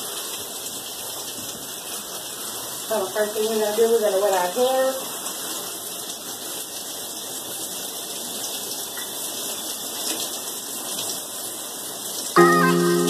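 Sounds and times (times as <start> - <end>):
tap water running and splashing: 0.0 - 13.0
music with sustained notes: 12.4 - 13.0.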